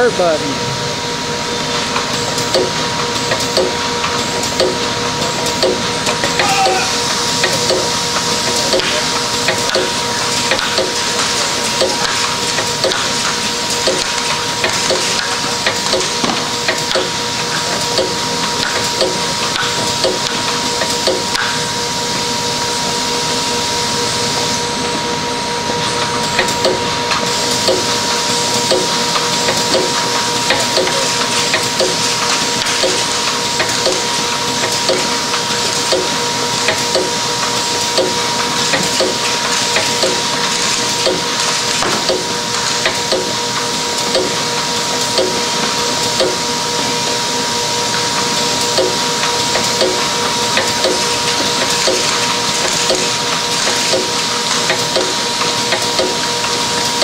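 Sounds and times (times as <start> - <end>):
machine hissing and whining: 0.0 - 57.0.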